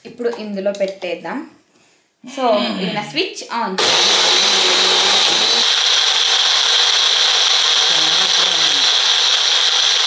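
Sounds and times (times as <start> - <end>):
blender motor whirring: 3.8 - 10.0.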